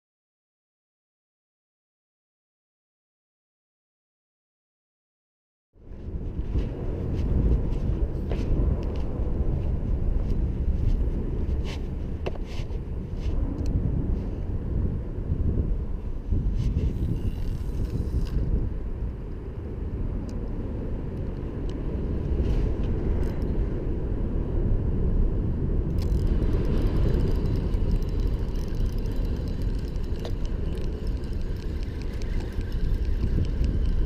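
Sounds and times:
wind buffeting microphone: 5.8 - 34.0
faint ticks: 25.9 - 34.0.

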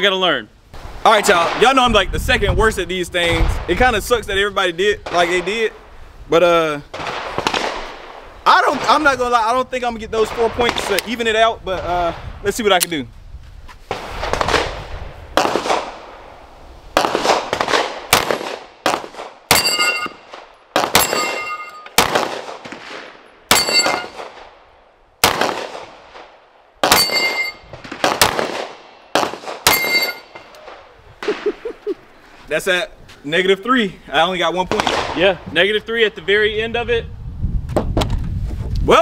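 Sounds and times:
pistol shots: 6.9 - 8.2, 15.4 - 16.1, 17.0 - 24.5, 25.2 - 30.6
steel plate clanging: 19.5 - 20.2, 21.0 - 22.0, 23.5 - 24.2, 26.9 - 27.6, 29.7 - 30.5.

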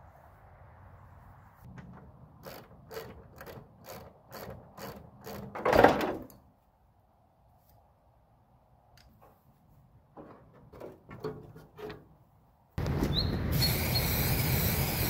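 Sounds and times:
regular mechanical clicking: 1.7 - 6.4.

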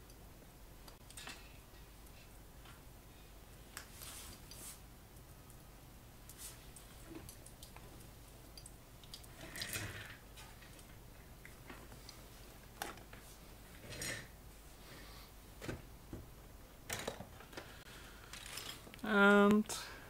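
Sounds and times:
rustles and light clicks: 3.5 - 5.6.

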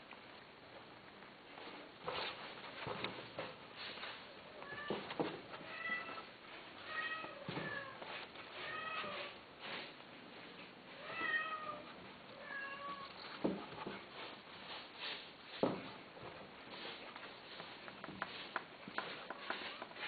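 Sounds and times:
cat meowing: 11.0 - 13.2.

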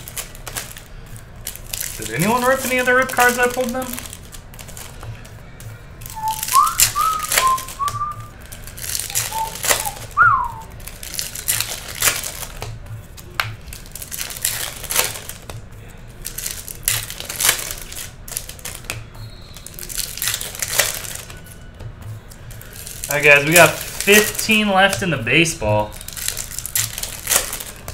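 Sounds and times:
cards riffled and shuffled: 0.0 - 27.9
foil wrappers crinkling and tearing: 0.0 - 27.9
person whistling: 6.1 - 8.4, 9.1 - 10.7.

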